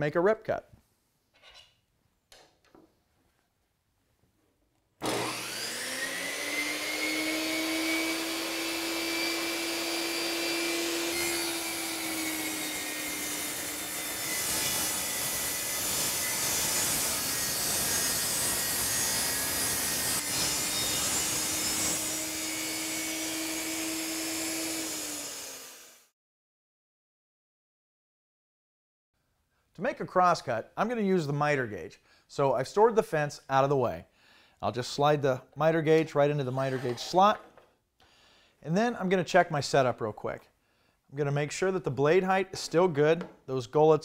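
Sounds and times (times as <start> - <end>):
table saw motor spinning up: 5.0 - 26.1
saw blade ripping a board: 8.9 - 25.6.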